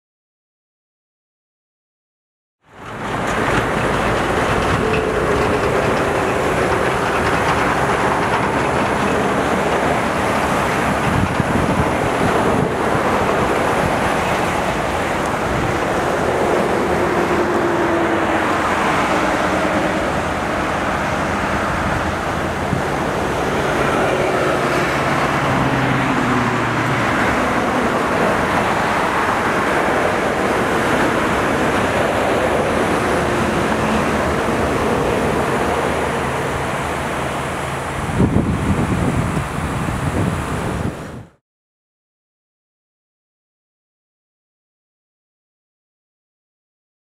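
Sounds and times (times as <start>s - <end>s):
heavy engine hum: 2.6s - 41.4s
highway traffic passing: 2.6s - 41.4s.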